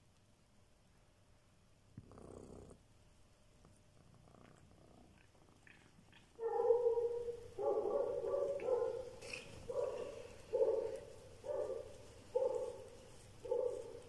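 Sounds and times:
cat purring: 1.9s - 11.2s.

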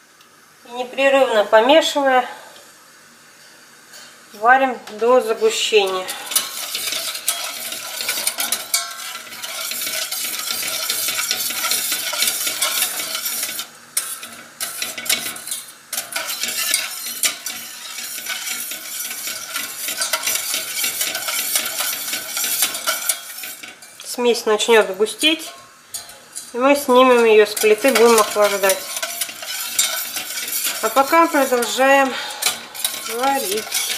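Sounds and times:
wire whisk scraping a saucepan: 5.8s - 33.9s.

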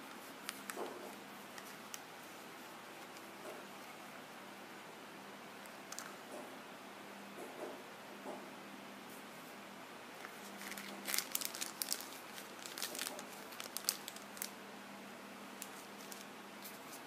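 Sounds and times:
faint steady hum: 0.0s - 17.0s
plastic packaging crinkling: 10.2s - 14.6s, 15.6s - 17.0s
small clicks and crackles: 10.2s - 14.6s, 15.6s - 17.0s.

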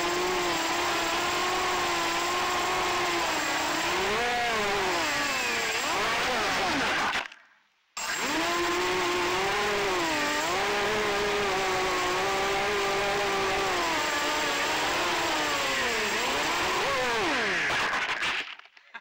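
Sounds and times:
quadcopter motors whining: 0.0s - 7.2s, 8.0s - 18.4s.

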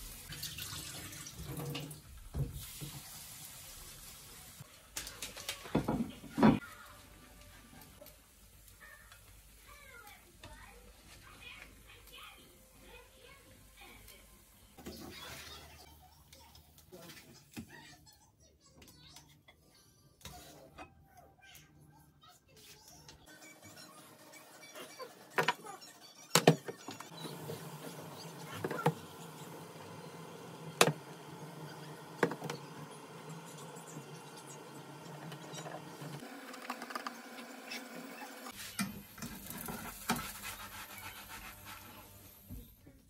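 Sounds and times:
whisk scraping through batter: 38.4s - 42.4s.

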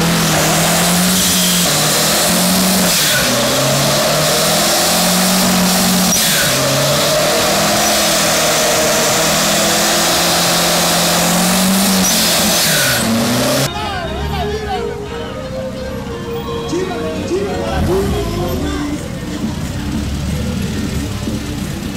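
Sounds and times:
engine revving high: 0.0s - 13.7s, 17.6s - 21.9s
wheels spinning on pavement: 0.0s - 13.7s.

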